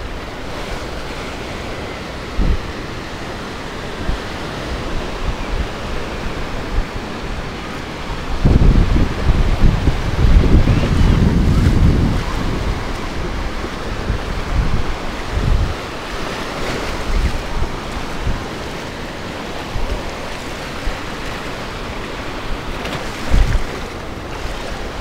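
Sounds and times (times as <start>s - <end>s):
ocean surf washing onto beach: 0.0s - 25.0s
wind buffeting microphone: 0.0s - 25.0s.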